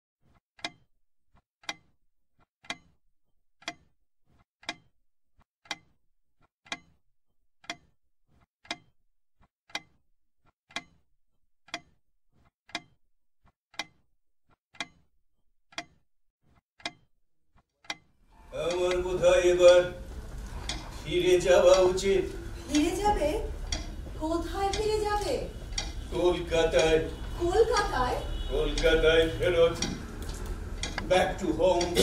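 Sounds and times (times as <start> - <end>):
clock ticking: 0.6 - 0.9, 1.6 - 2.0, 2.6 - 3.0, 3.6 - 3.9, 4.6 - 4.9, 5.6 - 6.0, 6.6 - 7.0, 7.6 - 9.0, 9.7 - 10.0, 10.7 - 11.0, 11.6 - 12.0, 12.7 - 13.0, 13.7 - 14.0, 14.7 - 15.1, 15.7 - 16.0, 16.8 - 17.1, 17.8 - 32.0.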